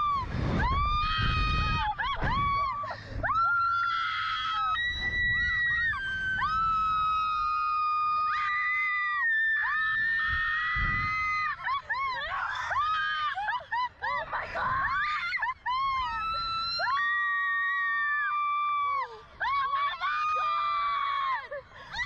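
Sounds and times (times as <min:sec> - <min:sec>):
wind rumble on microphone: 0:00.0 - 0:13.0
women screaming: 0:00.0 - 0:22.0.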